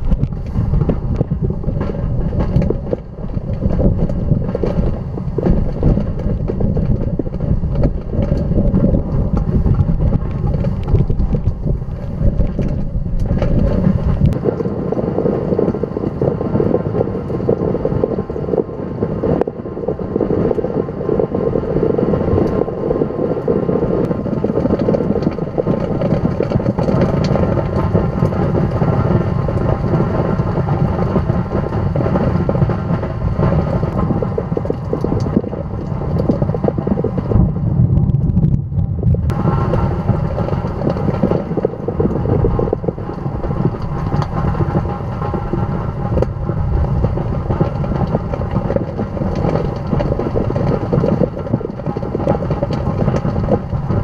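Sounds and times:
rain and debris ticking: 0.0 - 54.0
tornado wind rushing: 0.0 - 54.0.

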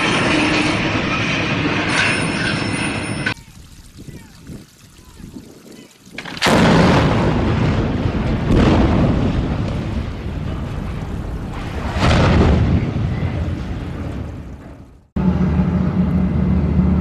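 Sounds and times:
heavy metal crash on ground: 6.2 - 15.0
explosive blasts with rumble: 6.2 - 15.4.

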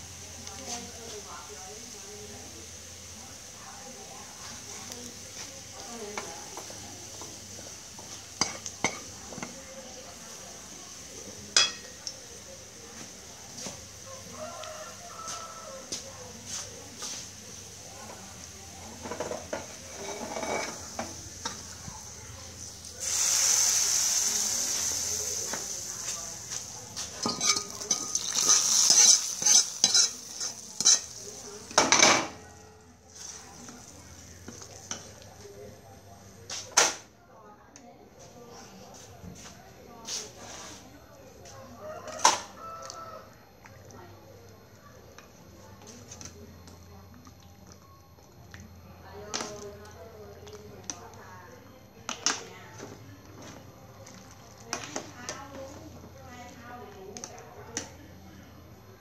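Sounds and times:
aromatics sizzling in oil: 0.0 - 37.1
wok clattering on stove: 8.3 - 9.6, 27.2 - 32.4
metal ladle scraping a wok: 19.0 - 21.6, 27.2 - 31.2.

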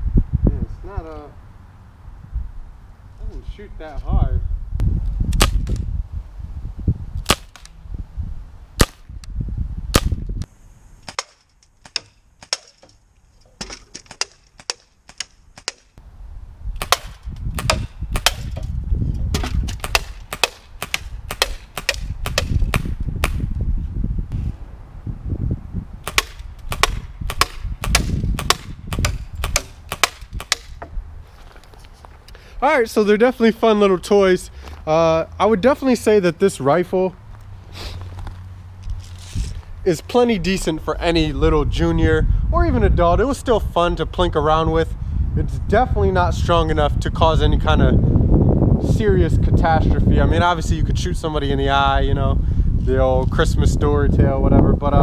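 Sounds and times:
bb rifle shots cracking: 7.2 - 7.8, 8.8 - 9.1, 16.8 - 18.6, 19.4 - 23.4, 26.0 - 30.8.

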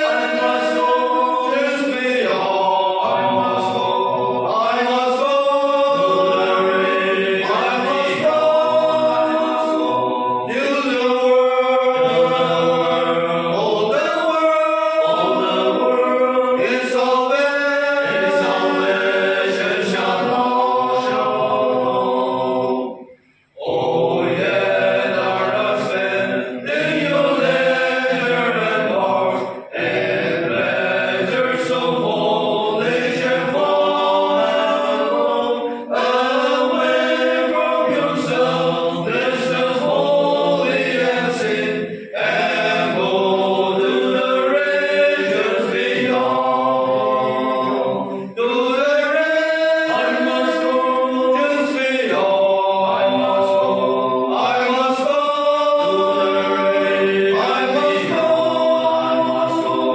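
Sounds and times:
men singing a hymn: 0.0 - 59.9.

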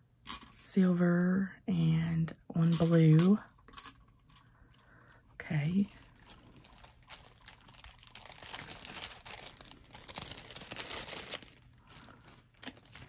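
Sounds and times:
plastic bag crinkling: 5.0 - 13.0.

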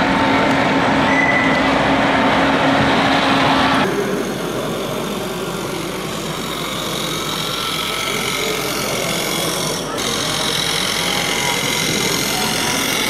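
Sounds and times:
model dozer humming and whirring: 0.0 - 13.0
model tractor engine running: 4.7 - 13.0.

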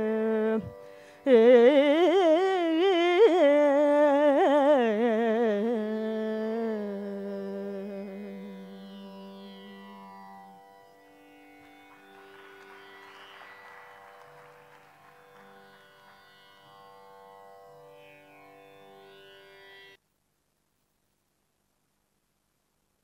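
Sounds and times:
woman singing ornamented vocal line: 0.0 - 10.1.

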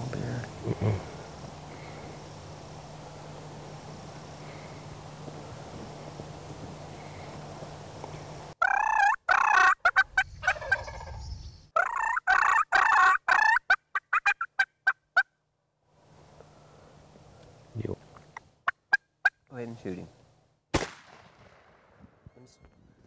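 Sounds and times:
turkeys gobbling: 8.6 - 15.3, 18.3 - 19.4.

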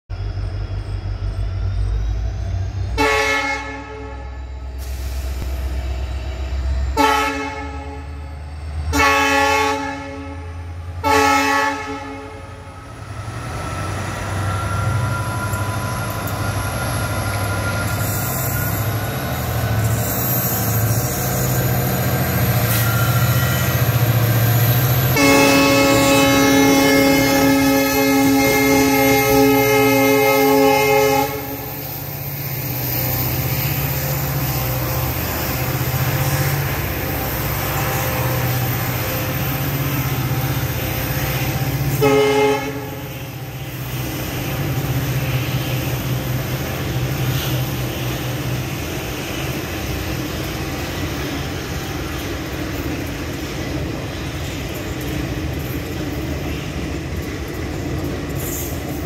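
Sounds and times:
diesel locomotive passing: 0.1 - 59.0
locomotive horn blasts: 3.0 - 4.4, 7.0 - 8.1, 8.9 - 12.6, 25.1 - 31.7, 34.8 - 39.6, 40.7 - 43.8.

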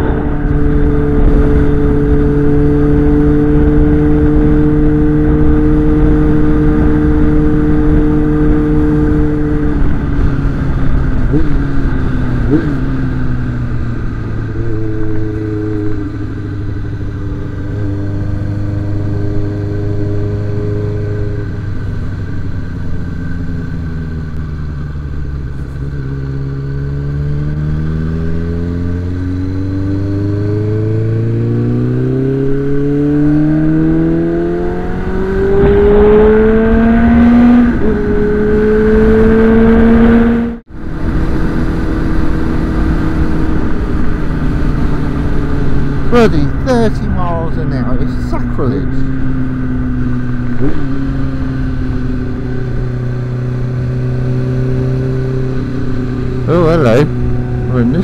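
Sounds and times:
motorcycle engine accelerating: 0.0 - 58.0
gear change: 32.4 - 40.3
wind rush: 34.8 - 47.2.

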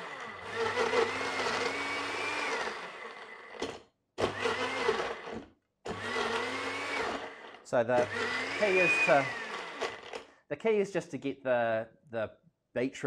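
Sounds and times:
blender crushing ice: 0.0 - 10.2.

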